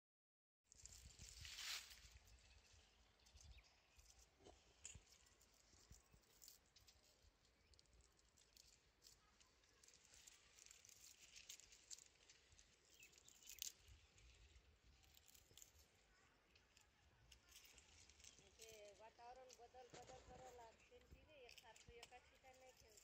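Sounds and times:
faint rustles and ticks: 0:00.7 - 0:23.0.

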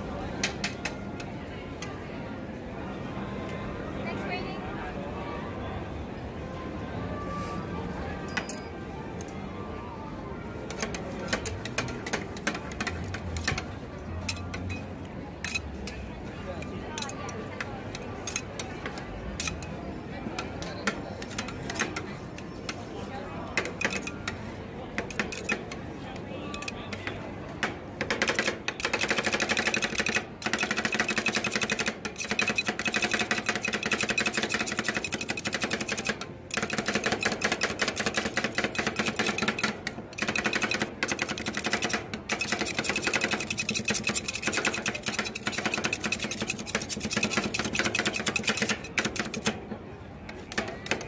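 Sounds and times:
murmur of voices: 0:00.0 - 0:51.0
metal spatulas chopping and scraping: 0:10.7 - 0:19.8, 0:20.4 - 0:22.8, 0:23.5 - 0:24.4, 0:25.0 - 0:25.8, 0:28.0 - 0:49.7.

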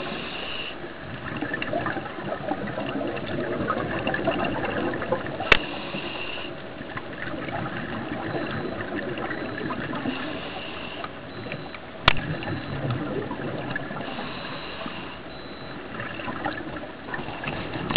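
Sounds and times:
steady underwater hiss: 0:00.0 - 0:04.0, 0:04.7 - 0:11.6, 0:13.1 - 0:16.3
underwater bubbles gurgling: 0:00.0 - 0:17.9.

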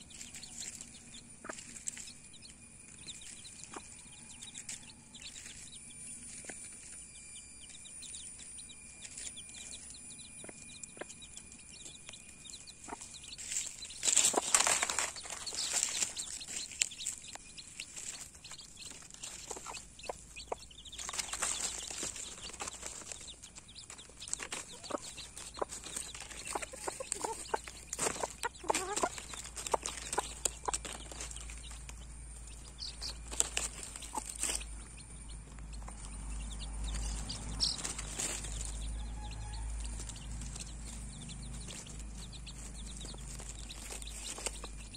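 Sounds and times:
hen clucking: 0:00.0 - 0:02.1, 0:12.7 - 0:44.9
rustling in dry leaves: 0:00.0 - 0:02.3, 0:02.9 - 0:07.0, 0:13.2 - 0:35.0, 0:36.4 - 0:44.9
chicks calling: 0:00.0 - 0:44.9.

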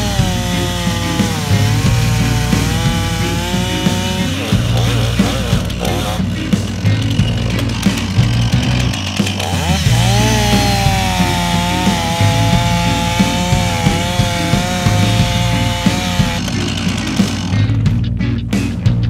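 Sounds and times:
chainsaw running at high speed: 0:00.0 - 0:18.0
background music: 0:00.0 - 0:19.0.

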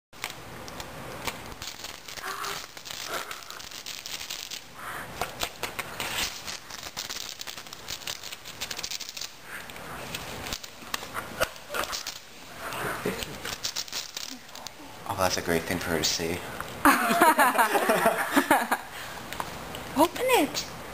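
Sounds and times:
wrapping paper crinkling and tearing: 0:00.2 - 0:15.5.

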